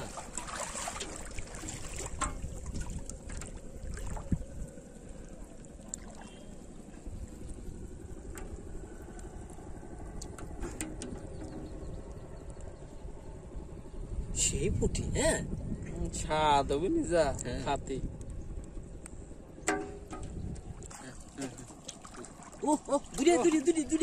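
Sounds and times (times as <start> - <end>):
water sloshing and splashing: 0.0 - 13.6, 19.5 - 24.0
steady low rumble: 0.0 - 24.0.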